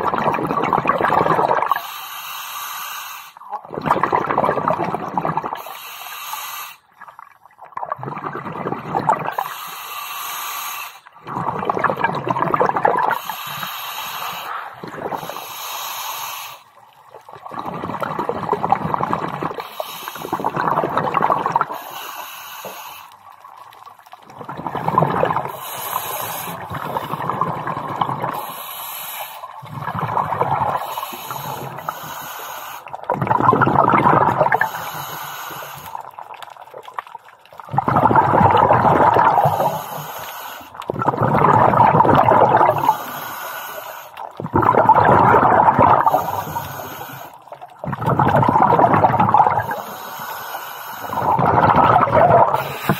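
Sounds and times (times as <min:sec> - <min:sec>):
bubbling exhalations underwater: 0:00.0 - 0:01.8, 0:03.4 - 0:05.7, 0:07.5 - 0:09.6, 0:11.1 - 0:13.8, 0:14.4 - 0:15.4, 0:17.0 - 0:21.9, 0:23.4 - 0:28.6, 0:29.5 - 0:32.2, 0:32.9 - 0:52.9
regulator hissing inhalations: 0:01.8 - 0:03.4, 0:05.6 - 0:06.8, 0:09.4 - 0:11.1, 0:13.1 - 0:16.7, 0:19.6 - 0:20.5, 0:21.7 - 0:23.2, 0:25.5 - 0:27.2, 0:28.3 - 0:29.6, 0:30.7 - 0:32.9, 0:34.6 - 0:36.0, 0:39.4 - 0:40.8, 0:42.7 - 0:44.2, 0:46.0 - 0:47.4, 0:49.6 - 0:51.3, 0:52.6 - 0:52.9.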